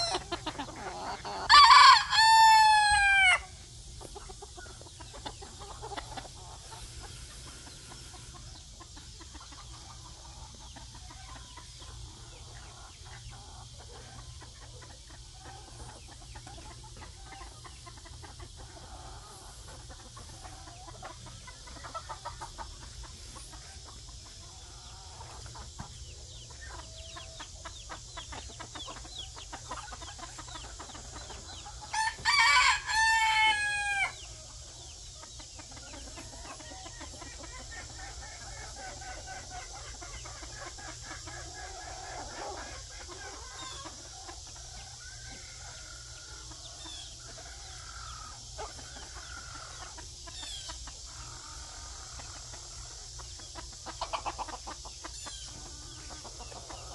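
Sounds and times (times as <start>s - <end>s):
rooster crowing: 0.0s - 0.3s, 1.0s - 3.5s, 31.9s - 34.3s
rooster clucking: 0.0s - 56.9s.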